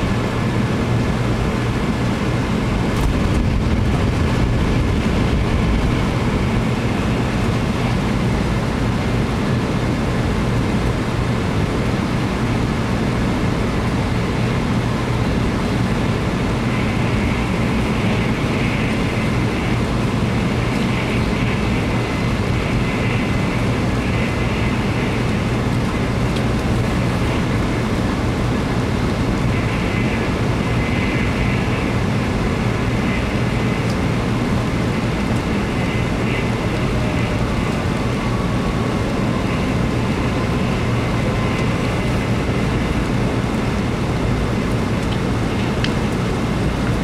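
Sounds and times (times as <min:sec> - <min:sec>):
train cabin rumble: 0:00.0 - 0:47.0.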